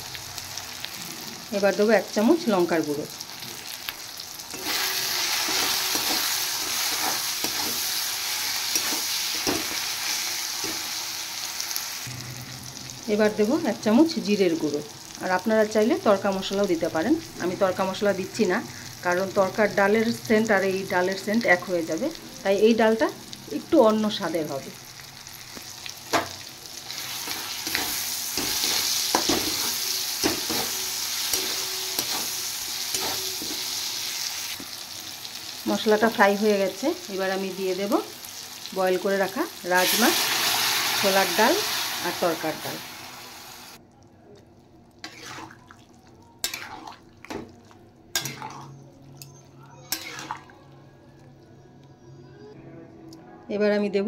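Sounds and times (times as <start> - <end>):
masala sizzling in oil: 0.0 - 43.8, 44.9 - 48.8, 49.8 - 50.4
metal spatula scraping a pan: 4.5 - 10.8, 27.0 - 34.3, 45.0 - 45.6, 46.4 - 47.0, 48.1 - 50.5.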